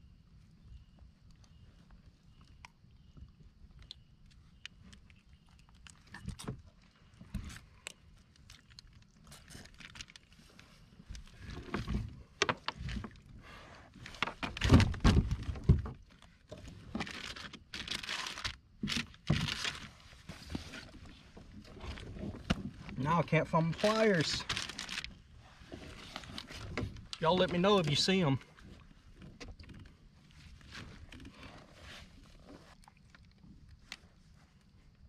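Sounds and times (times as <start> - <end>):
knocks and thumps on kayak: 14.2 - 16.0.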